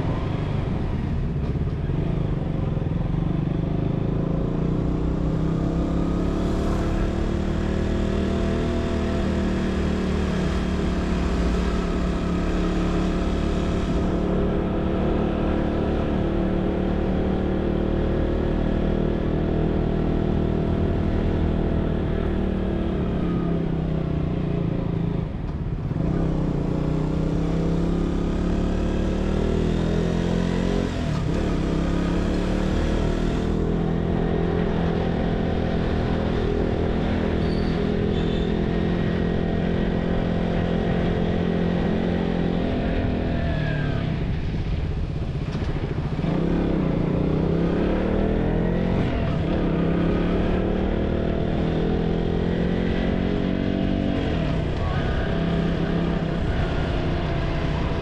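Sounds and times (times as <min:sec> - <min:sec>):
motorcycle engine revving: 0:03.3 - 0:58.0.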